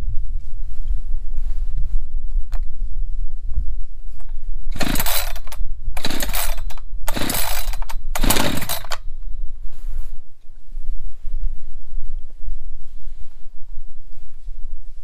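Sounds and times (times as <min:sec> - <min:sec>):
wind on microphone: 0:00.0 - 0:15.0
chainsaw recoil starter pulls: 0:04.7 - 0:09.0.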